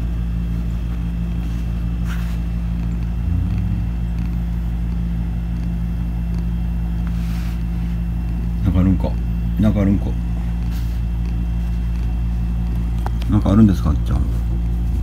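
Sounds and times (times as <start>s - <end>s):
cat purring: 2.8s - 4.6s.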